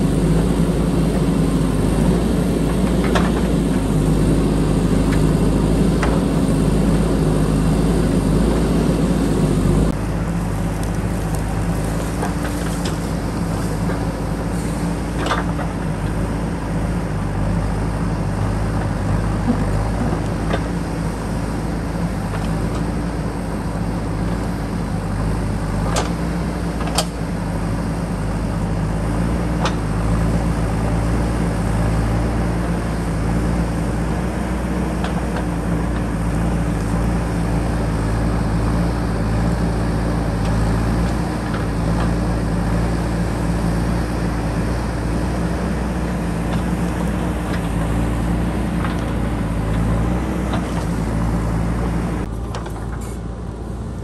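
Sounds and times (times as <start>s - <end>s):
diesel engine running under load: 0.0s - 54.0s
sharp knocks of backhoe: 2.6s - 4.0s, 15.1s - 16.1s, 25.8s - 27.3s.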